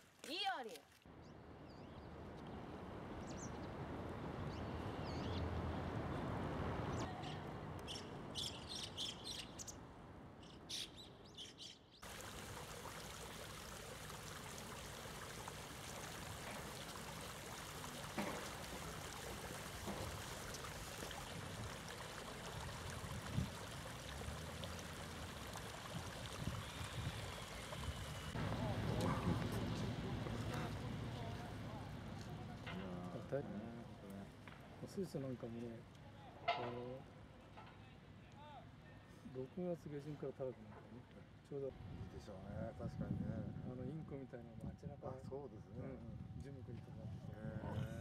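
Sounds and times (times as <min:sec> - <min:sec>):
river water running over stones: 0:12.0 - 0:29.0.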